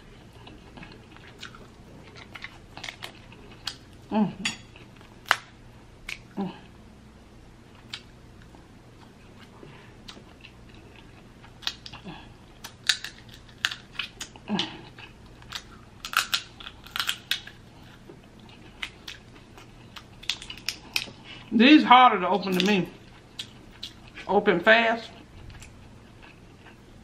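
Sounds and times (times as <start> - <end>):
crab shells cracking: 12.6 - 14.7, 15.3 - 17.6, 18.8 - 21.2.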